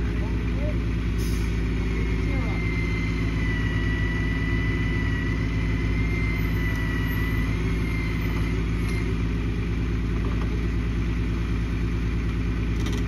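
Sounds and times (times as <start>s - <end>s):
truck engine running: 0.0s - 13.0s
thin high whine: 1.9s - 9.2s.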